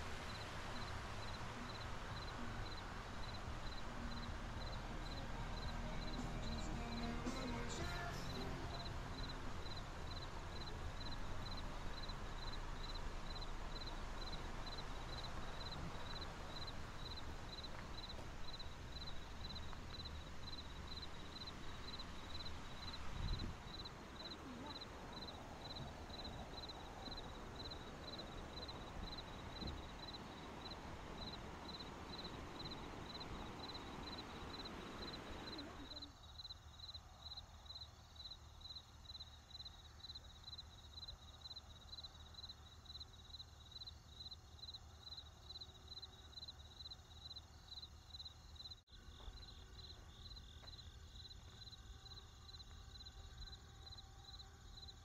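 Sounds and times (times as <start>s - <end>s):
rushing water: 0.0s - 35.6s
insect chirping: 0.0s - 55.0s.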